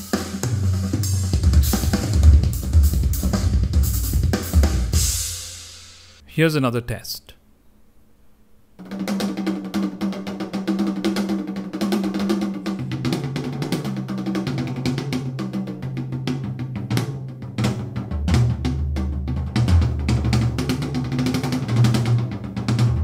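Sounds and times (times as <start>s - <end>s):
drum-heavy music through speakers: 0.0s - 6.1s.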